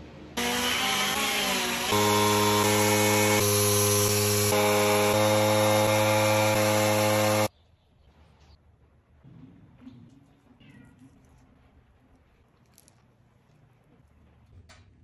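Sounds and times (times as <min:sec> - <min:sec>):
power carving tool on wood: 0:00.4 - 0:07.5.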